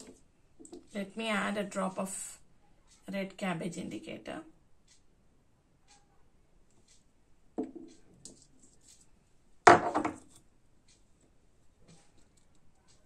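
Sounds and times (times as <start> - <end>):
lab items knocking on tabletop: 7.6 - 7.9, 9.7 - 10.3.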